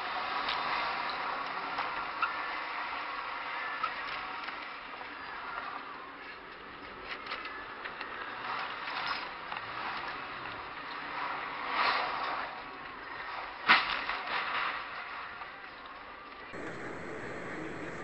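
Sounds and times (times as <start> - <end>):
car driving noise: 16.5 - 18.0.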